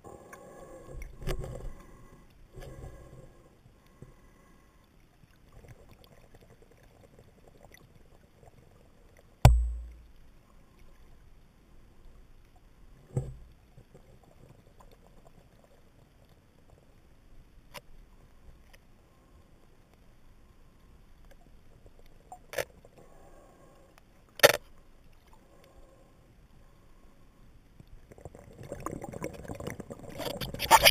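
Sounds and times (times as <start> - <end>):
faint underwater hiss: 0.0 - 30.9
small underwater clicks: 0.2 - 3.0, 17.6 - 18.9, 21.1 - 23.0, 23.9 - 25.8, 27.7 - 30.9
sharp thumps with low boom: 9.4 - 10.0.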